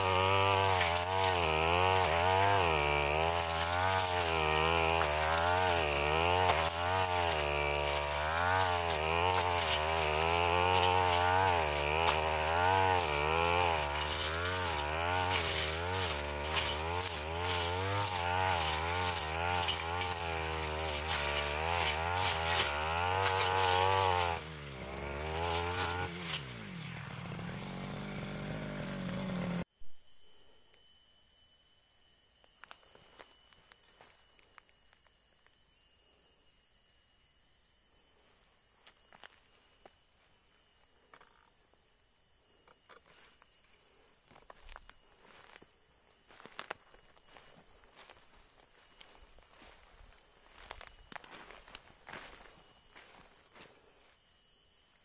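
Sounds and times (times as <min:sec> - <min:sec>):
brush cutter engine: 0:00.0 - 0:29.7, 0:42.8 - 0:54.3
insects chirping: 0:00.0 - 0:55.0.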